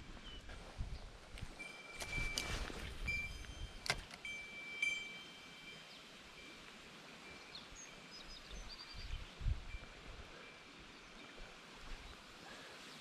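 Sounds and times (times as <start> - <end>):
small birds chirping: 7.3 - 9.5.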